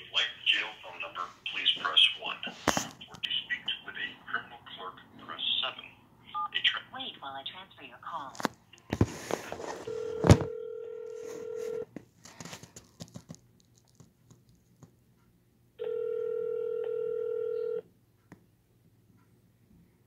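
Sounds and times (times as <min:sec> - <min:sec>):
telephone ringback tone: 0:09.8 - 0:11.9, 0:15.8 - 0:17.8.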